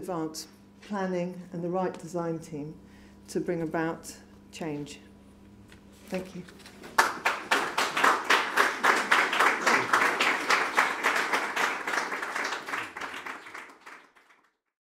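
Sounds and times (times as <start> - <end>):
audience applauding: 6.9 - 14.6.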